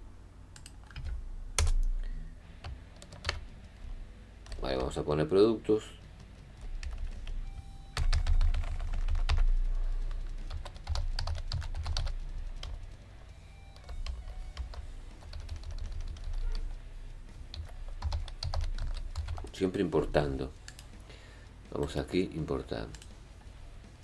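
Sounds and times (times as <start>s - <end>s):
typing on computer keyboard: 2.6s - 3.5s, 6.2s - 7.4s, 8.0s - 12.9s, 13.8s - 16.7s, 17.5s - 19.5s.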